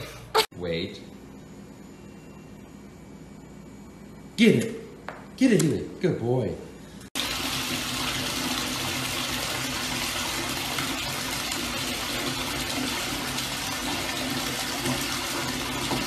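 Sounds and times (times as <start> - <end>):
shower water spraying: 7.2 - 16.0.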